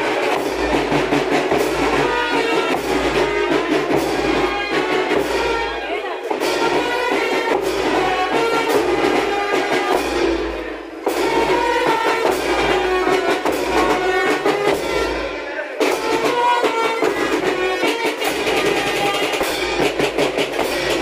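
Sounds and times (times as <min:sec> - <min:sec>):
brass melody: 0:00.0 - 0:21.0
drum beats: 0:00.0 - 0:21.0
cymbal crashes: 0:06.4 - 0:21.0.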